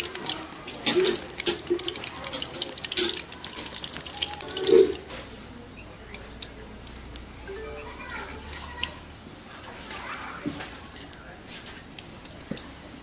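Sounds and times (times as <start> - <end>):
food sizzling in hot oil: 0.0 - 9.1.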